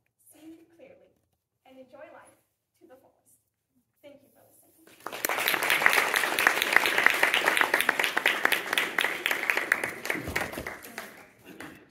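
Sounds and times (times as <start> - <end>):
sharp close hand claps: 4.9 - 11.8
audience applauding: 4.9 - 11.9.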